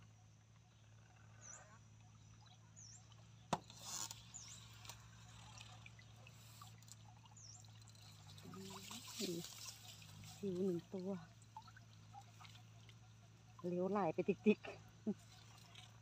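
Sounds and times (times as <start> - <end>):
water trickling off net: 3.6 - 16.0.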